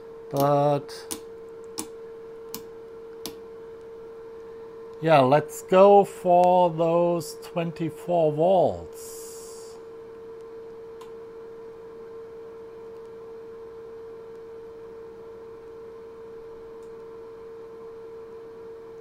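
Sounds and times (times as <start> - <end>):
steady pure tone: 0.0 - 10.2.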